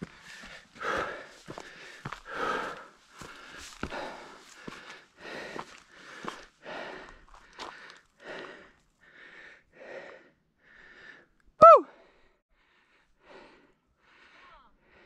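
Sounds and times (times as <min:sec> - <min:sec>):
footsteps crunching: 0:00.0 - 0:06.6, 0:07.2 - 0:08.0.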